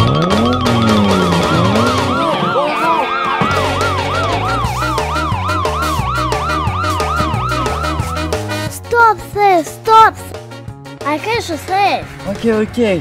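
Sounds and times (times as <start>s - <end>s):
police siren yelping: 0.0s - 8.6s
children's music with beat: 0.0s - 13.0s.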